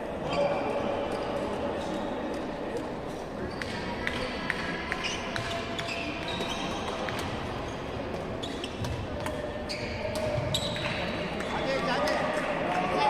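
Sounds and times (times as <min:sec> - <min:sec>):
indoor hall noise: 0:00.0 - 0:13.0
shoes squeaking on court floor: 0:05.0 - 0:11.8.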